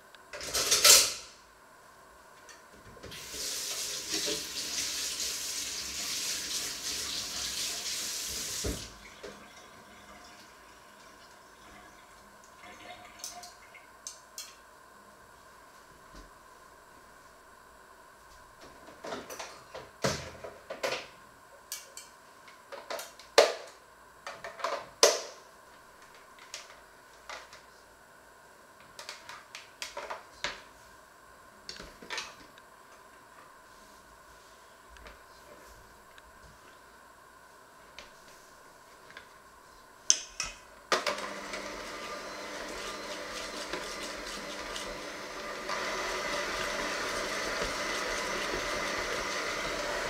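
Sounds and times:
electric hand mixer running: 41.0s - 50.0s.

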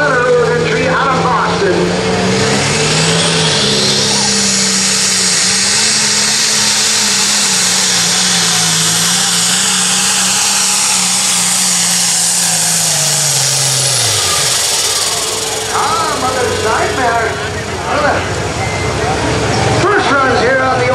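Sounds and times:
diesel engine running flat out: 0.0s - 20.9s
loud hiss: 2.5s - 18.5s.

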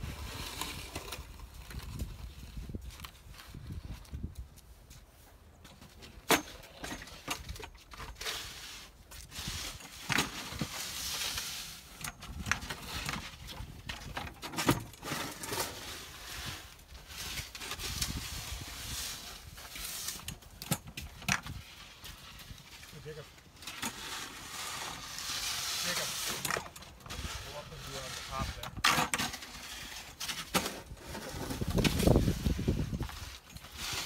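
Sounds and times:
snow shovels scraping pavement: 0.0s - 2.6s, 7.8s - 12.0s, 14.4s - 20.6s, 21.4s - 34.0s.

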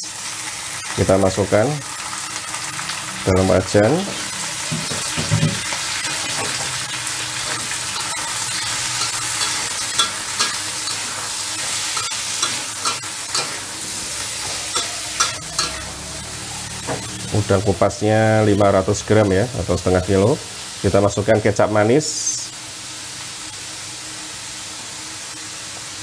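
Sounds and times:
shrimp sizzling in hot oil: 0.0s - 26.0s
spatula scraping pan: 4.0s - 17.3s.

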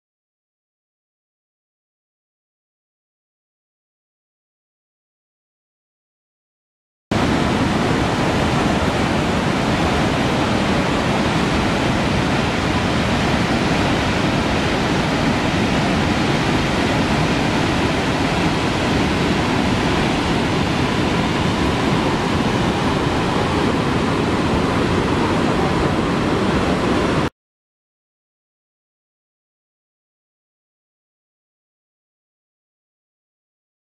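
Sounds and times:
waterfall rushing: 7.1s - 27.3s.

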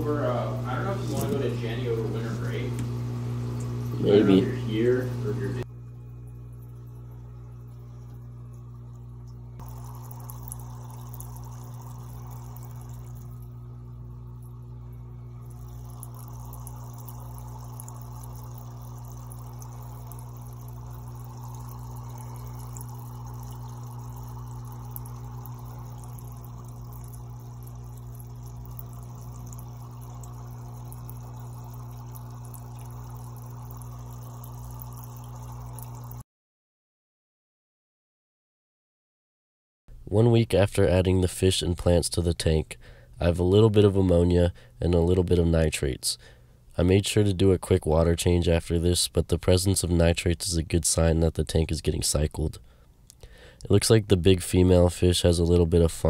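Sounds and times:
aquarium pump humming: 0.0s - 36.2s
water bubbling and splashing: 8.8s - 36.2s.

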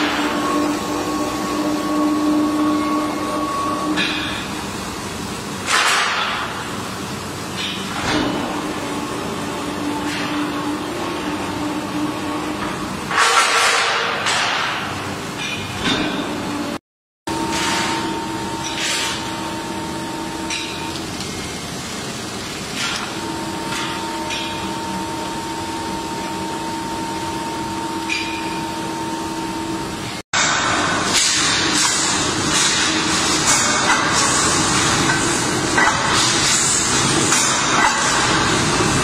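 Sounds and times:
hissing mill: 0.0s - 5.3s
rolling mill machine hum: 0.0s - 39.0s.

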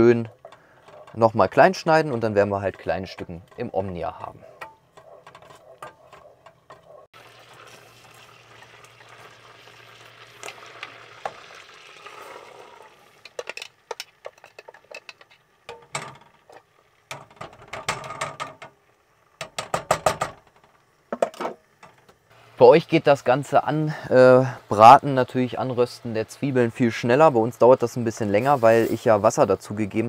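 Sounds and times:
spatula stirring and scraping pot: 0.0s - 7.1s, 13.3s - 15.9s
onions sizzling: 6.0s - 19.7s, 20.4s - 30.0s.

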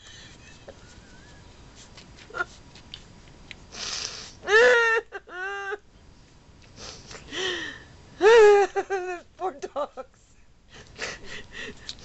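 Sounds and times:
woman laughing breathlessly: 0.0s - 1.5s, 4.4s - 5.8s, 6.8s - 12.0s.

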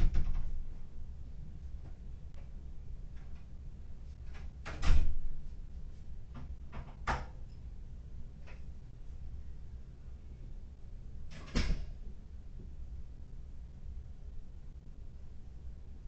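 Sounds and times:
low hum: 7.4s - 16.0s.

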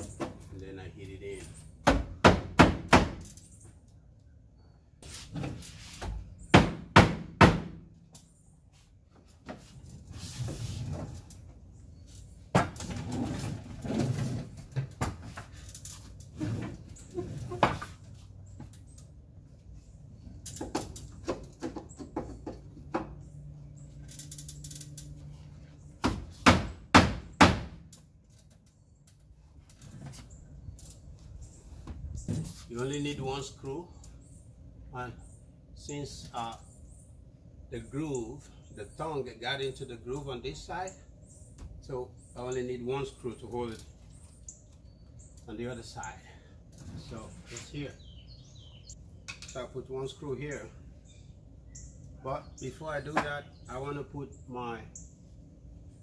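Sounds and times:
boards being handled and rubbed: 5.0s - 6.3s, 8.7s - 11.3s.

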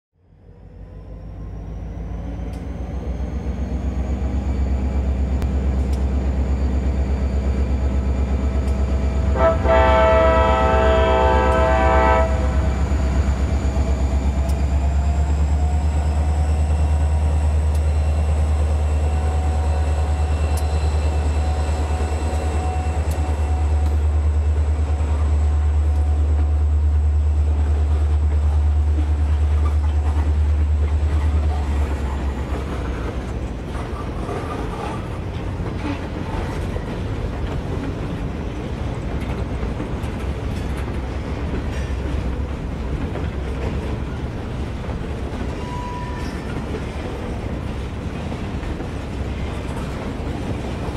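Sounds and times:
locomotive engine rumble: 0.3s - 50.9s
locomotive horn blast: 9.1s - 13.0s.

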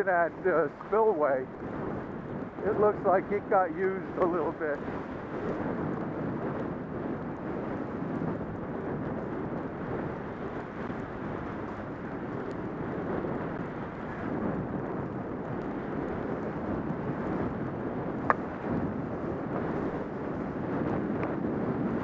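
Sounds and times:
wind rushing on microphone: 0.0s - 22.0s
skis sliding on snow: 2.7s - 5.5s.

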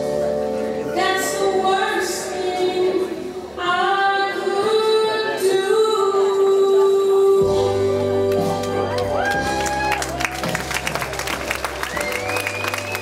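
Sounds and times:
woman singing: 0.9s - 9.0s
backing music: 7.3s - 13.0s.

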